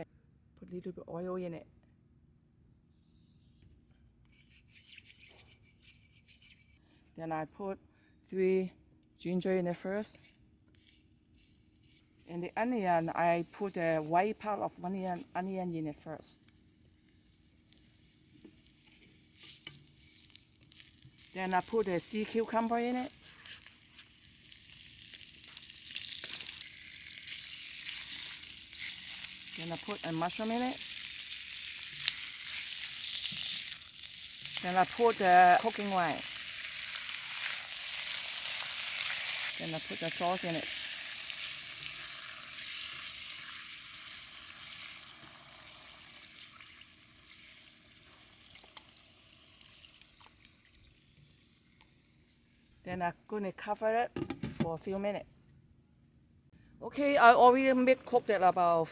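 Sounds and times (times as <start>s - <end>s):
food sizzling in hot oil: 17.8s - 50.2s.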